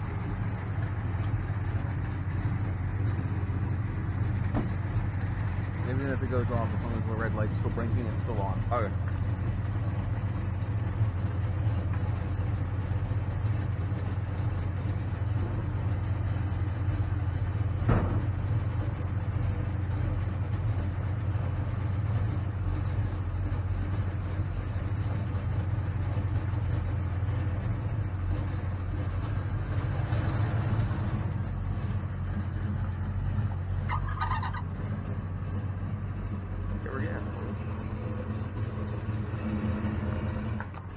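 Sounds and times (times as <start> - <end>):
vehicle engine idling: 0.0 - 40.9.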